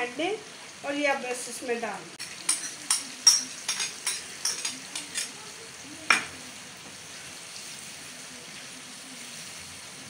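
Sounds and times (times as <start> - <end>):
sauce sizzling in pan: 0.0 - 10.0.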